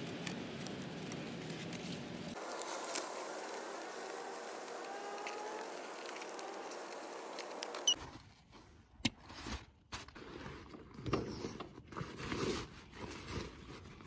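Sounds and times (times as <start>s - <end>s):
steady background hiss: 0.0s - 8.0s.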